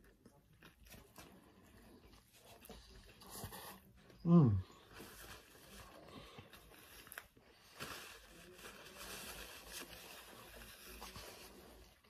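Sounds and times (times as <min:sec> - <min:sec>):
quiet chewing: 0:00.0 - 0:08.3
paper wrapper rustling: 0:04.8 - 0:12.0.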